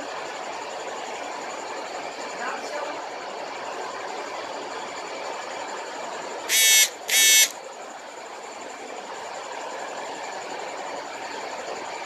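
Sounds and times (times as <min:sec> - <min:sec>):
steady machinery noise: 0:06.0 - 0:12.0
high-pitched electronic buzzes: 0:06.5 - 0:07.6.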